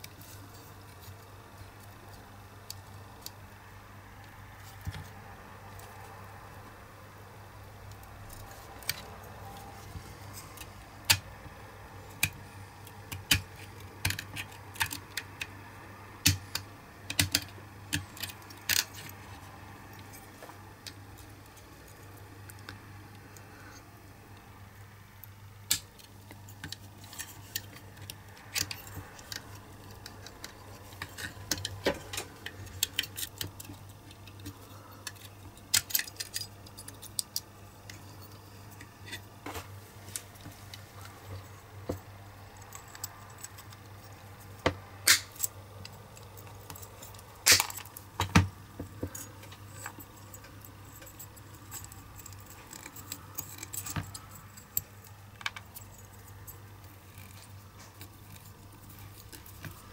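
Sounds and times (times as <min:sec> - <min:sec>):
faint steady hum: 0:00.0 - 0:59.9
metal toy parts clicking and clinking: 0:16.2 - 0:22.7, 0:25.7 - 0:39.2, 0:42.6 - 0:48.1, 0:48.9 - 0:59.9.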